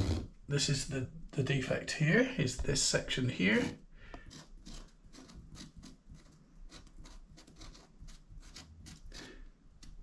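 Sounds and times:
marker pen writing strokes: 4.2 - 10.0.

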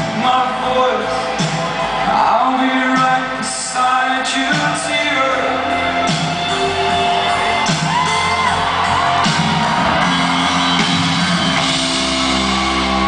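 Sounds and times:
live rock band playing: 0.0 - 13.0
audience whooping: 5.1 - 13.0.

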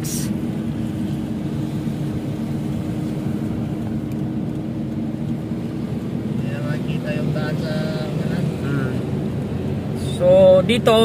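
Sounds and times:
car engine and tyre drone: 0.0 - 11.0.

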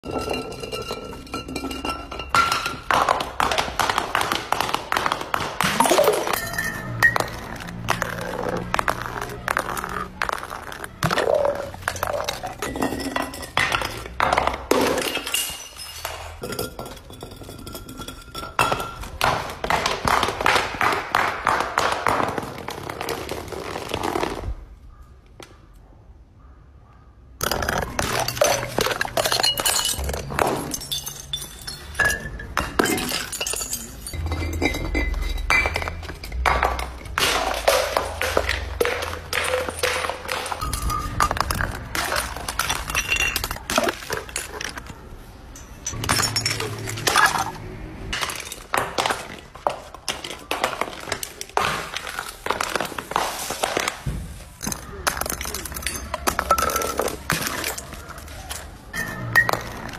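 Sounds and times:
glass shards clinking: 0.0 - 2.9, 5.8 - 7.6, 11.5 - 19.2, 27.4 - 48.8, 54.7 - 59.9
glass bottles smashing on concrete: 0.0 - 24.2, 27.4 - 59.9.

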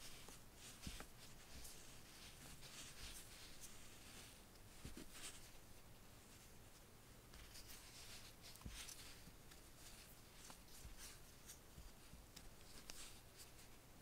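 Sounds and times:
crochet hook scratching: 0.0 - 5.6
soft bumps of hands moving: 0.0 - 6.0.

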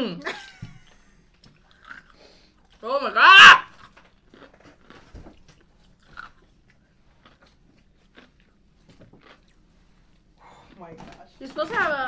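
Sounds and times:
person chewing a crunchy snack: 1.4 - 2.8, 3.7 - 10.9.

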